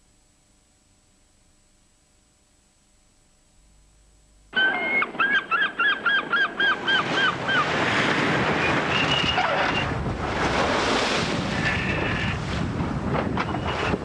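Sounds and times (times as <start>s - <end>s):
wind: 1.6s - 14.0s
birds honking: 4.6s - 7.9s
sea surf rushing: 4.6s - 14.0s.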